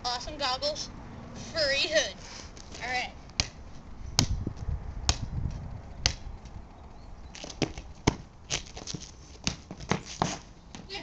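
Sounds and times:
rubber ball bouncing on concrete: 0:07.4 - 0:10.9.

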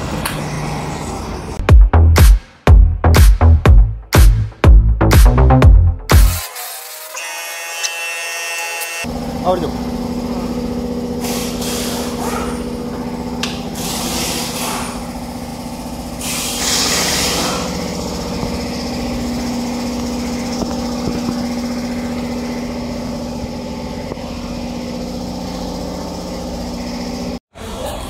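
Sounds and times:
engine hum: 0:09.1 - 0:28.0.

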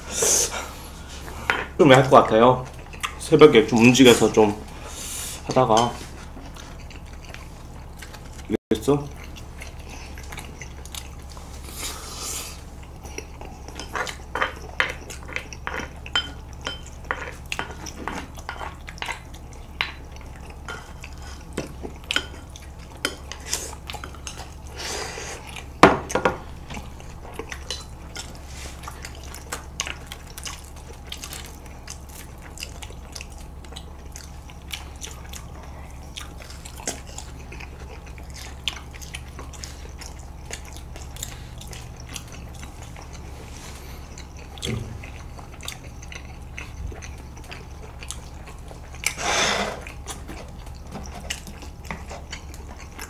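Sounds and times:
steady low hum: 0:00.0 - 0:53.0
slurping noodles: 0:49.1 - 0:50.0.

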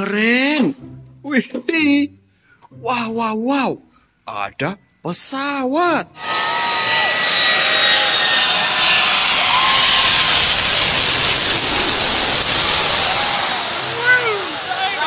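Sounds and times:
jet airliner passing overhead: 0:06.2 - 0:15.0.

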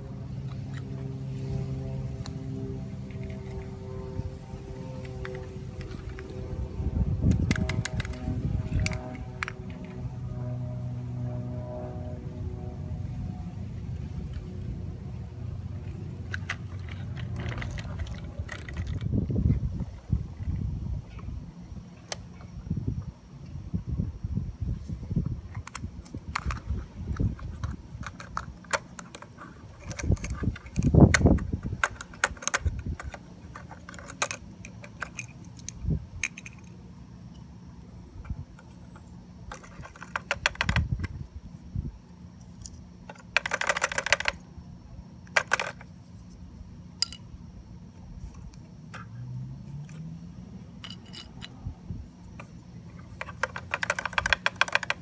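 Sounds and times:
plastic and metal toy clicks: 0:07.2 - 0:09.9, 0:25.6 - 0:36.7, 0:39.5 - 0:40.9, 0:43.1 - 0:44.4, 0:45.3 - 0:45.9, 0:53.1 - 0:55.0.

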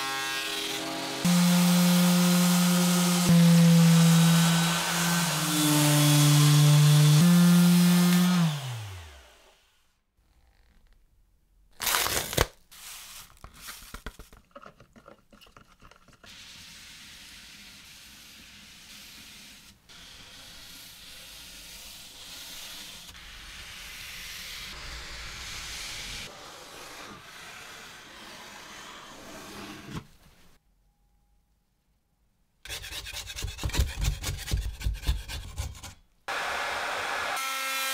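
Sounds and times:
loud scrape: 0:16.3 - 0:30.2.

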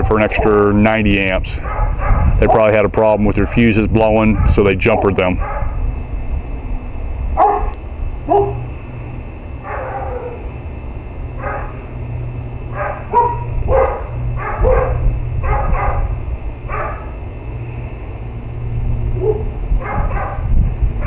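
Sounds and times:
dog barking: 0:00.2 - 0:00.6, 0:01.6 - 0:02.7, 0:04.3 - 0:05.8, 0:07.4 - 0:07.6, 0:12.7 - 0:16.0, 0:16.7 - 0:17.2, 0:19.2 - 0:20.4.

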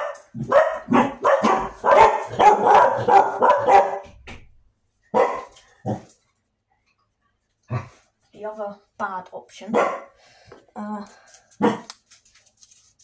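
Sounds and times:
dog barking: 0:00.0 - 0:04.1, 0:05.1 - 0:06.0, 0:09.7 - 0:10.2, 0:11.6 - 0:11.9.

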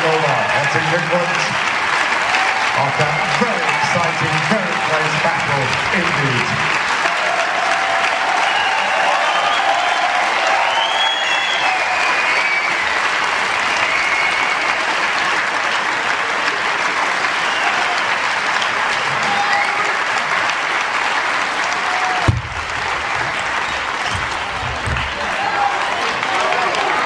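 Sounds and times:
audience applauding: 0:00.0 - 0:27.0.

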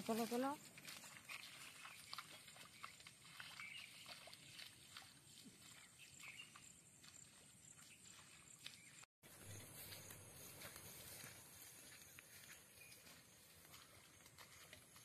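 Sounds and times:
faint bird chirps: 0:12.4 - 0:13.2.

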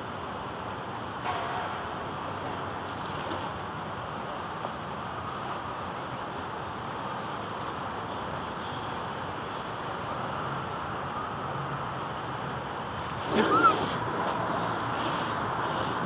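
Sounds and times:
wind or surf on microphone: 0:11.8 - 0:16.0.

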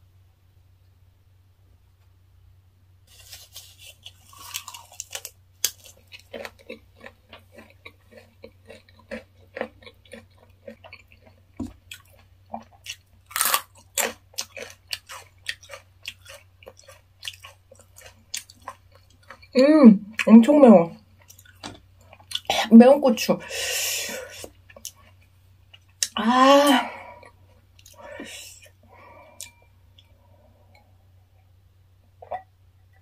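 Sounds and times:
loud crunch of chili pepper: 0:03.1 - 0:19.4
wet chewing and crunching: 0:03.1 - 0:20.3, 0:21.0 - 0:22.5, 0:24.2 - 0:26.2.

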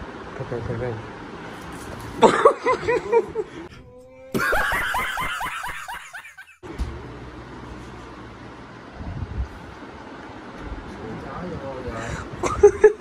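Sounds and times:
man laughing: 0:02.2 - 0:03.6, 0:04.2 - 0:06.6, 0:12.4 - 0:13.0.

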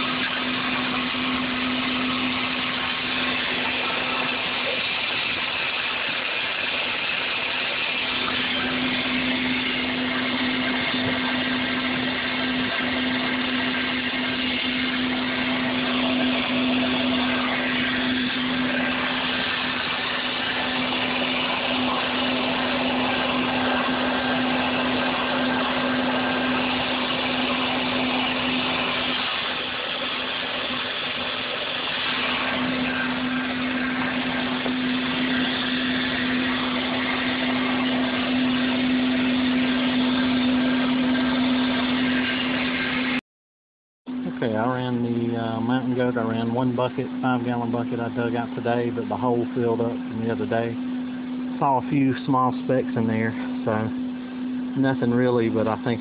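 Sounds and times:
motor hum: 0:00.0 - 0:43.2, 0:44.1 - 0:56.0.

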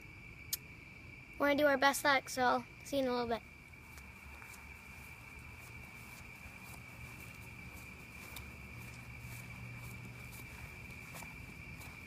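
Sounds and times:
rustling footsteps: 0:03.7 - 0:12.0.

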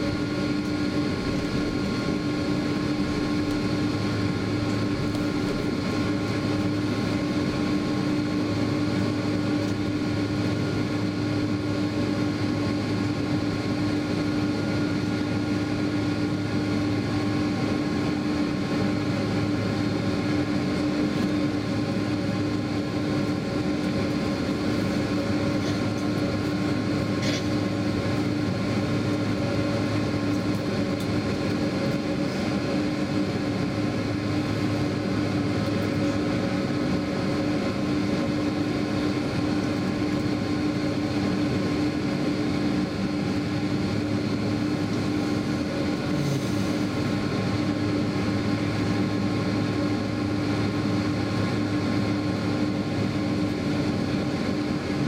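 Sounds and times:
cabin air hum: 0:00.0 - 0:12.3
faint steady whines: 0:00.0 - 0:55.0
jet engines idling drone: 0:00.0 - 0:55.0.

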